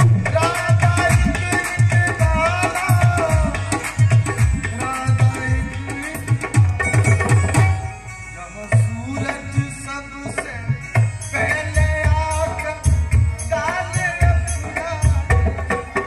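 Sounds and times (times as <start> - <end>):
hand drum beat: 0.0 - 7.8
harmonium melody: 0.0 - 16.0.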